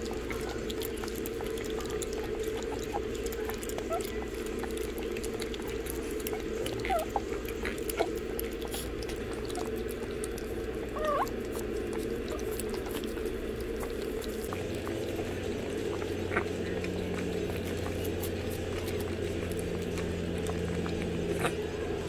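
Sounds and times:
puppies lapping food: 0.0 - 22.0
puppy squeaks: 6.7 - 8.1, 10.9 - 11.4.

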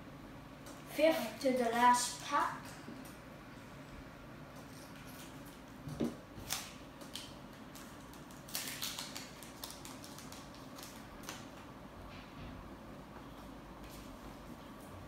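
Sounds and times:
foil wrapper crinkling: 6.4 - 11.6.

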